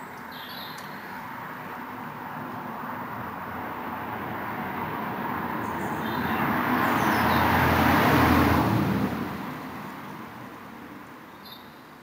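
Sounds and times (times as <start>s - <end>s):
vehicle passing by: 1.2s - 11.0s
faint bird chirps: 11.3s - 11.9s.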